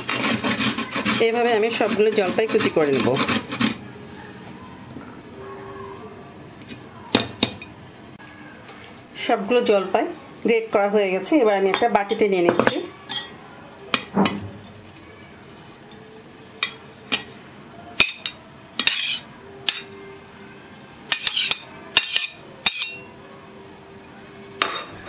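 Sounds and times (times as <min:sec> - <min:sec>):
metal spoon clinking on ceramic: 0:21.1 - 0:23.1.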